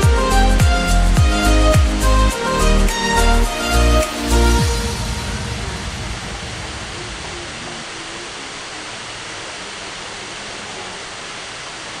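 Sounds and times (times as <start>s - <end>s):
background music: 0.0s - 6.5s
waterfall rushing into pool: 3.3s - 12.0s.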